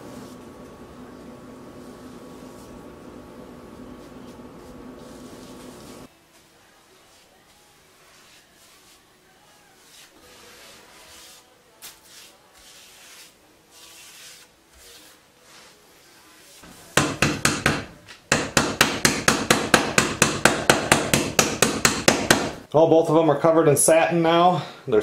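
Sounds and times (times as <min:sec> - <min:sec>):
faint brushing: 0:00.0 - 0:17.2.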